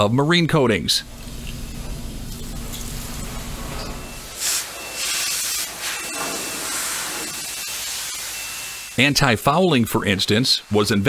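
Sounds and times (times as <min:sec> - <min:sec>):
low steady rumble: 0:01.0 - 0:04.3
paint spray gun hissing: 0:04.3 - 0:08.9.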